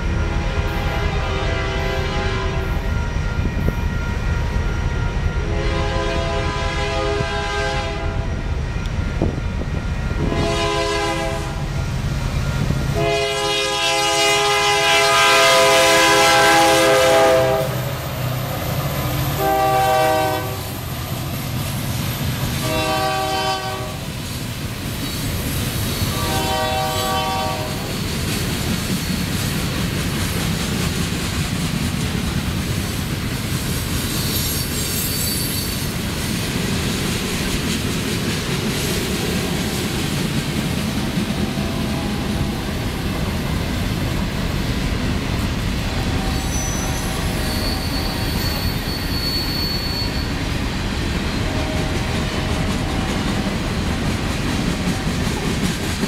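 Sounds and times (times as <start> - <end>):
locomotive air horn blasts: 0.2 - 4.0, 5.2 - 8.4, 10.1 - 11.7, 12.9 - 17.9, 19.3 - 20.8, 22.6 - 24.1, 26.1 - 27.9, 45.9 - 49.0, 51.4 - 53.3.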